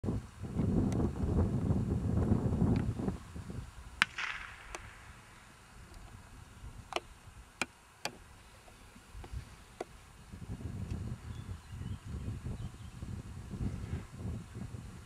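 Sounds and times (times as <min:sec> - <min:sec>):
distant gunshot crack: 0:04.0 - 0:05.2.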